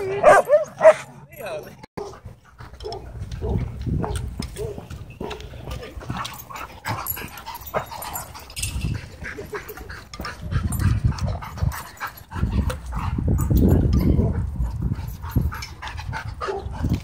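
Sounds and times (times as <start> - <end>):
dogs whining yipping and barking: 0.0 - 1.1, 6.1 - 12.4.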